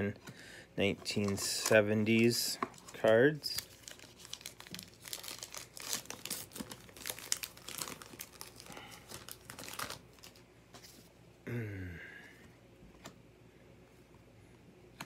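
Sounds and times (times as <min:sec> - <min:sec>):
cards flicking and rustling: 0:00.9 - 0:11.0.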